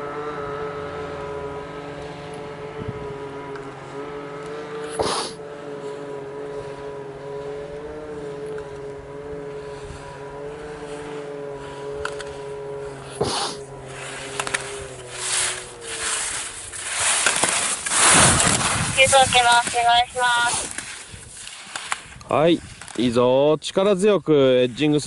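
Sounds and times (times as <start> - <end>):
steady machine drone: 0.0 - 22.0
short rushing noise burst: 13.2 - 22.1.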